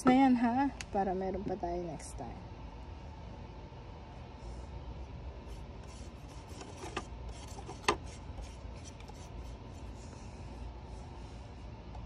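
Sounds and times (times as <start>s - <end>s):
paintbrushes and pots rubbing and tapping: 5.8s - 10.5s.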